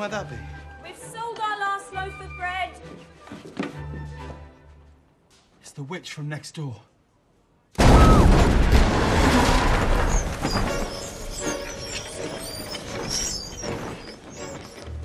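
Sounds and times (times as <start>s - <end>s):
loud blast of door bursting: 7.8s - 10.7s
debris clattering down: 7.8s - 11.4s
mice squeaking: 10.0s - 15.0s.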